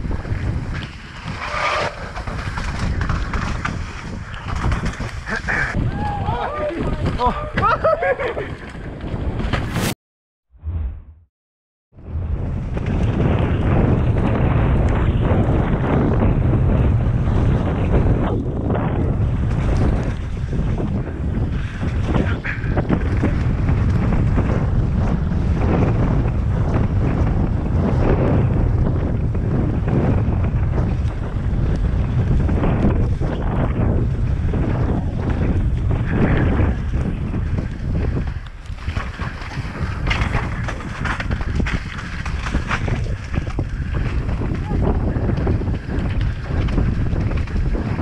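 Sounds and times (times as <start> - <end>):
bike clattering over bumps: 0.0 - 5.8, 12.6 - 48.0
tyres rolling over dirt and rock: 0.0 - 5.8, 34.5 - 48.0
wind rushing over microphone: 0.0 - 11.3, 11.9 - 48.0.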